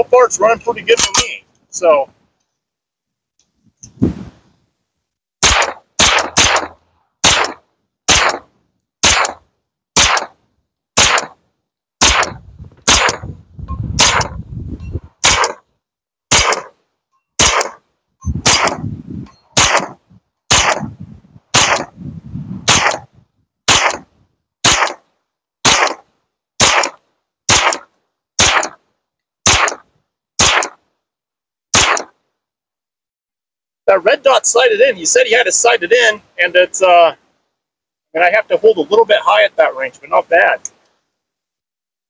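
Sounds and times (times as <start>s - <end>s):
gunshots: 5.4s - 9.4s, 10.0s - 10.4s, 11.0s - 11.4s, 12.0s - 13.3s, 14.0s - 14.4s, 15.2s - 15.6s, 16.3s - 16.8s, 17.4s - 17.8s, 18.4s - 18.8s, 19.6s - 20.9s, 21.5s - 22.0s, 22.6s - 23.1s, 23.7s - 25.0s, 25.6s - 28.8s, 29.4s - 30.8s, 31.7s - 32.2s.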